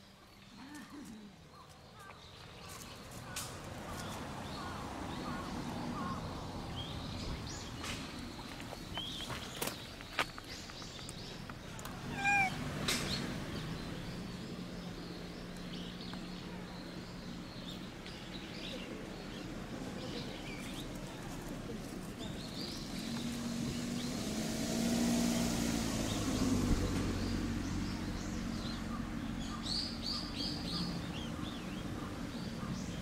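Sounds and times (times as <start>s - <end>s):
cat meowing: 12.1s - 12.6s.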